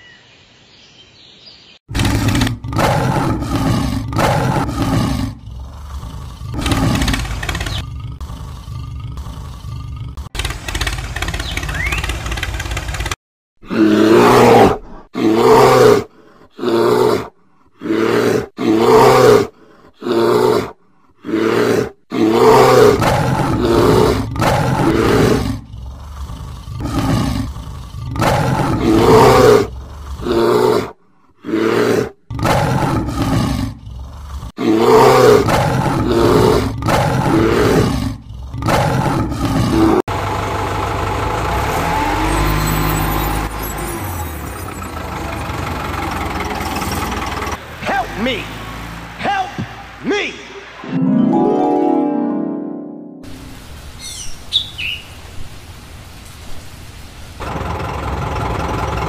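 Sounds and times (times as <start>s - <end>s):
animal roars: 1.9s - 11.0s, 13.6s - 40.1s
steady engine sound: 5.4s - 13.2s, 40.1s - 42.6s, 44.7s - 48.4s, 57.4s - 59.0s.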